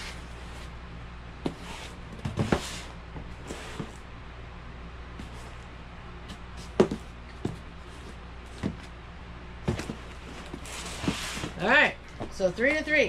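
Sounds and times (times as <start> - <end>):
steady low hum: 0.0 - 13.0
cardboard boxes knocking on table: 6.7 - 7.6, 9.7 - 11.6.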